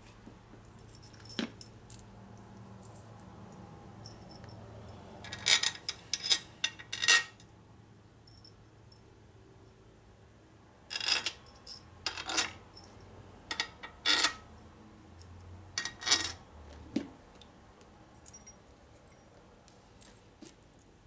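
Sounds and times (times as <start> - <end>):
small metal screws clinking: 0.7 - 2.1, 4.0 - 7.5, 10.9 - 14.4, 15.2 - 16.4, 18.2 - 19.4.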